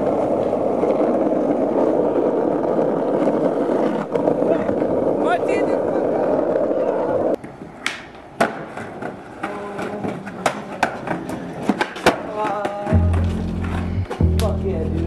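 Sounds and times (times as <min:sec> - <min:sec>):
skateboard clacks on concrete: 0:07.2 - 0:14.5
hip-hop beat with heavy bass: 0:12.9 - 0:15.0
steady rushing rumble: 0:13.0 - 0:15.0.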